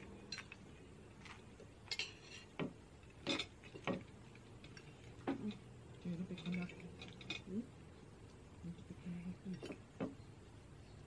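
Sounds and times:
low steady hum: 0.0 - 11.0
cutlery clinking on plates: 1.9 - 2.6.

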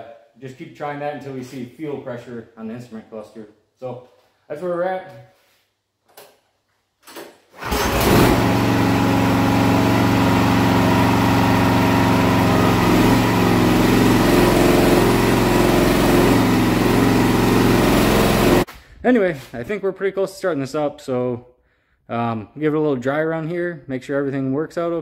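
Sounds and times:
small gasoline engine running: 7.6 - 18.7.

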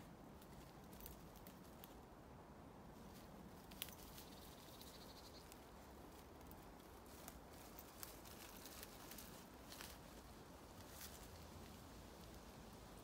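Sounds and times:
footsteps through dry leaves: 5.8 - 11.4.

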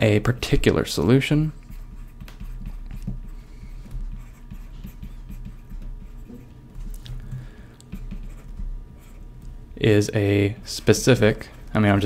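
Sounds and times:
stylus tapping on tablet screen: 1.7 - 6.2.

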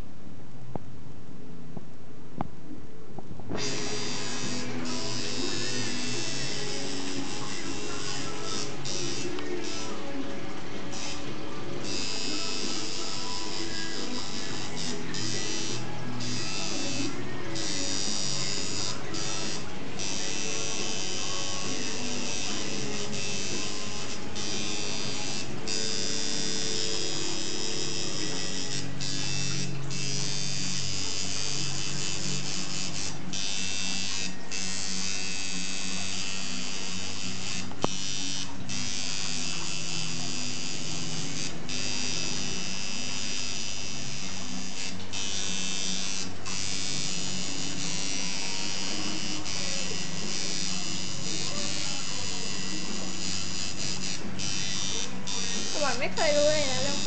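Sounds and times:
tattoo machine buzzing: 3.5 - 10.2, 10.8 - 57.0
background music: 3.5 - 57.0.

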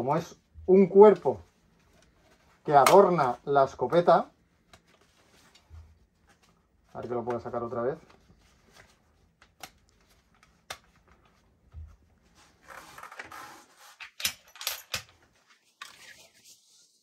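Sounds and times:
rustling: 4.5 - 13.7
clicks and knocks of parts: 14.0 - 15.2.

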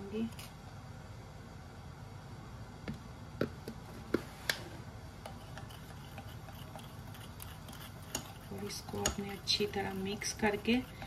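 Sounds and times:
metal spoon scraping ceramic bowl: 5.3 - 11.0.

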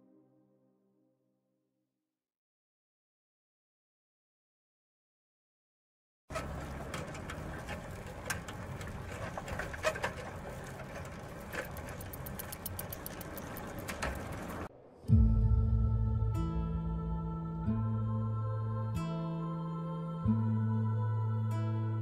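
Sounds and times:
music: 0.0 - 1.7, 15.0 - 22.0
bicycle ticking and clicking: 6.3 - 14.7.

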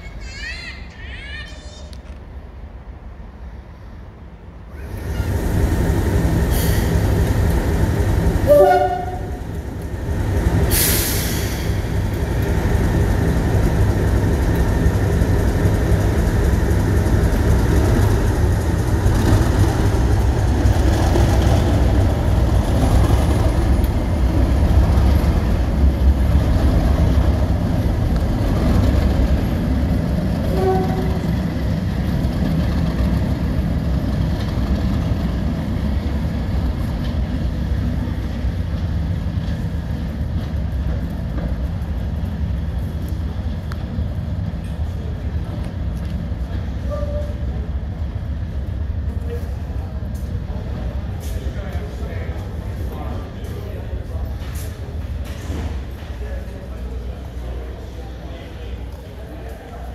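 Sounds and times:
locomotive engine drone: 2.0 - 59.9
two-tone locomotive horn: 8.4 - 9.4, 30.4 - 31.3, 46.9 - 47.4
burst of hiss: 10.7 - 11.8.

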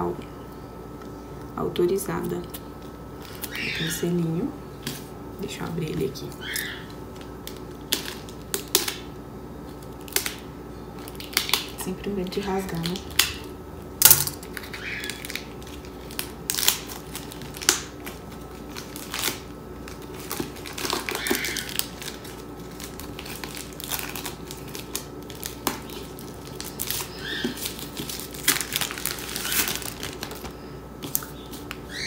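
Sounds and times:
plastic shrink-wrap crinkling: 2.8 - 4.0, 5.8 - 9.1, 11.0 - 13.5, 14.1 - 32.0.

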